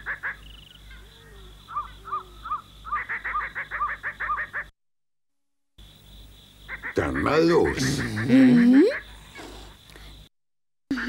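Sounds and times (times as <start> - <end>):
rapid animal calls: 0.0 - 4.7, 6.7 - 9.8.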